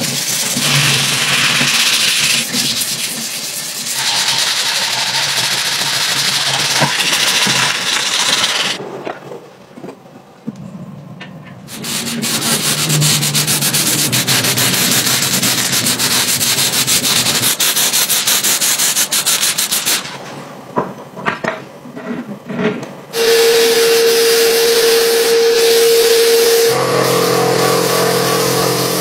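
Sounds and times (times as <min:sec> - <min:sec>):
sandblasting gun hissing: 0:00.0 - 0:08.8, 0:11.7 - 0:20.1, 0:23.2 - 0:29.0
spray paint hissing: 0:00.0 - 0:08.8, 0:11.7 - 0:20.1, 0:23.2 - 0:29.0.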